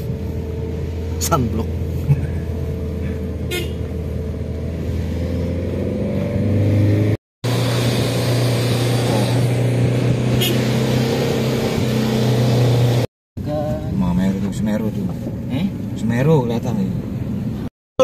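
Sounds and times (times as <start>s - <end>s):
vehicle engine running: 0.0s - 5.6s
road noise: 0.0s - 17.7s.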